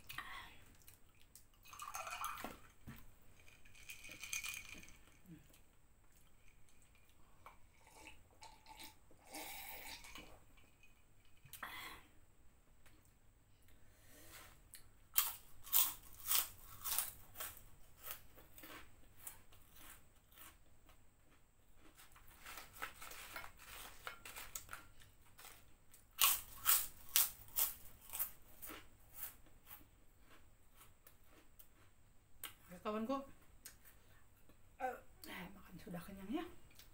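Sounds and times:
crackers crunching while chewed: 0:14.8 - 0:32.6.

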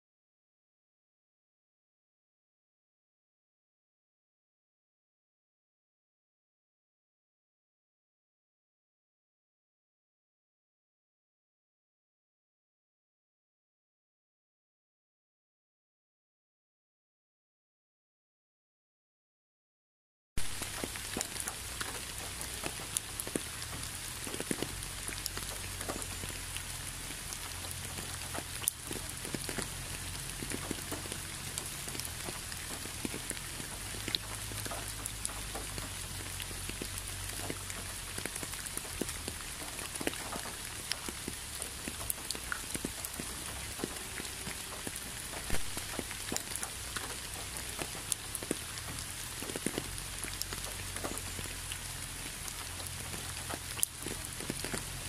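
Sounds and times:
rain falling: 0:20.4 - 0:55.0
raindrops ticking: 0:20.4 - 0:55.0.

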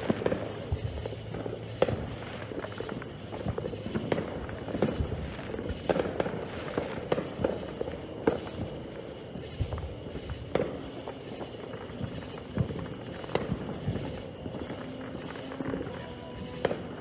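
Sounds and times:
distant fireworks popping: 0:00.0 - 0:17.0.

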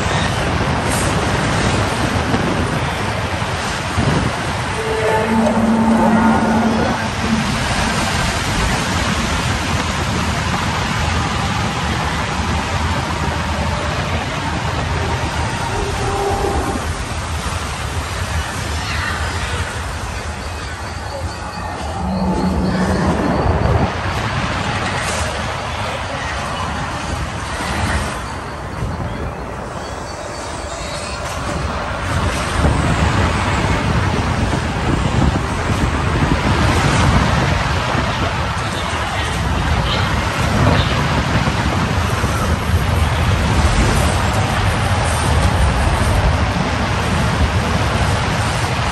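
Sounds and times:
rushing wind: 0:00.0 - 0:48.9
rushing air: 0:00.5 - 0:11.4, 0:12.3 - 0:18.8, 0:19.8 - 0:25.8
deep rumble: 0:03.9 - 0:10.2, 0:21.1 - 0:25.0.

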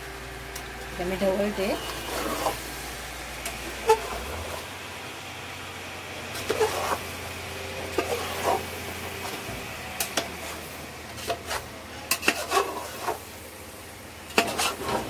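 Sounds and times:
low steady hum: 0:00.0 - 0:15.0
spoon scraping a metal pot: 0:01.8 - 0:02.6, 0:06.4 - 0:07.0, 0:07.9 - 0:08.7, 0:11.2 - 0:13.2, 0:14.3 - 0:15.0.

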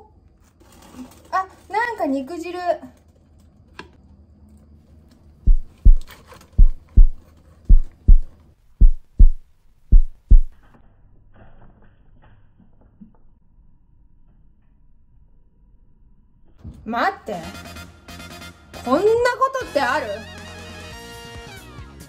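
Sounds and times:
heartbeat double thumps: 0:05.5 - 0:10.6.

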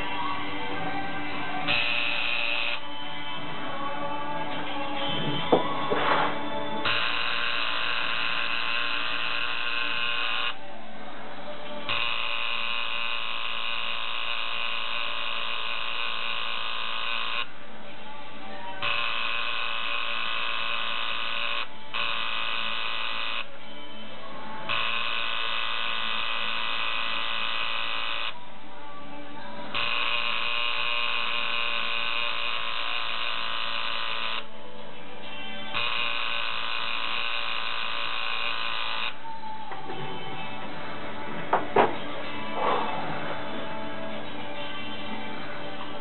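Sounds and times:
tattoo machine buzzing: 0:01.7 - 0:02.8, 0:06.8 - 0:10.6, 0:11.9 - 0:17.5, 0:18.8 - 0:23.5, 0:24.7 - 0:28.4, 0:29.7 - 0:34.5, 0:35.7 - 0:39.2.

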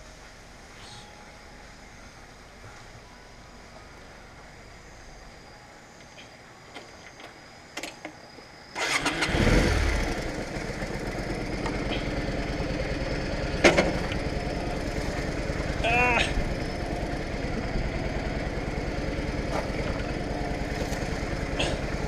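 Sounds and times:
motorcycle engine starting and idling: 0:08.8 - 0:22.0.

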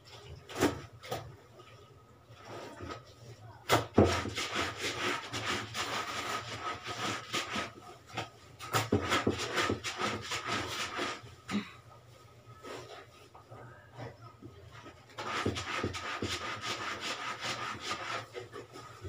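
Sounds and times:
brush scrubbing clothing: 0:03.8 - 0:11.3, 0:14.7 - 0:19.0.

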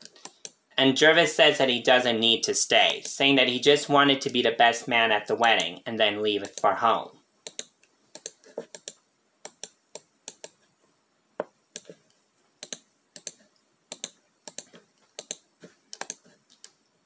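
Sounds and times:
keyboard keys clicking: 0:12.6 - 0:16.8.

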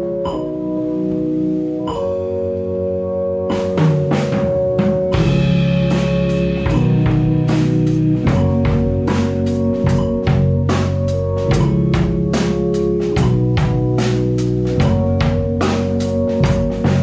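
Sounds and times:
live rock band playing: 0:03.4 - 0:17.0
drum kit hits: 0:03.5 - 0:17.0
electric guitars: 0:04.1 - 0:15.8.

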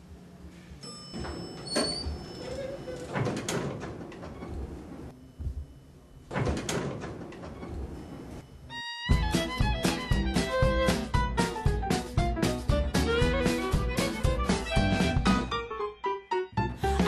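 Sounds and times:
elevator doors sliding: 0:00.8 - 0:08.9
violin music: 0:08.7 - 0:16.2.

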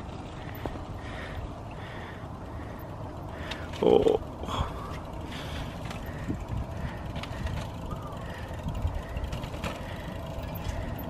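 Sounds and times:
bicycle freewheel hub ticking: 0:00.0 - 0:11.0
bicycle wheels knocking on steps: 0:04.8 - 0:11.0.

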